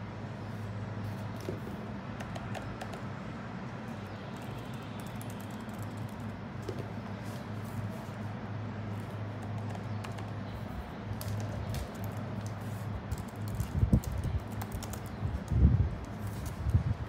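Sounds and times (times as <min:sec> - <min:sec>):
steady low hum: 0:00.0 - 0:17.0
laptop keyboard keys clicking: 0:02.2 - 0:03.1, 0:04.3 - 0:06.8, 0:09.0 - 0:10.4, 0:11.1 - 0:16.8.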